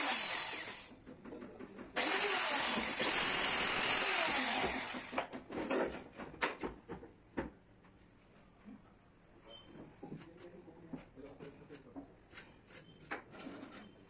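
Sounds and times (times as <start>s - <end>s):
router cutting plywood: 0.0s - 0.9s, 2.0s - 5.2s.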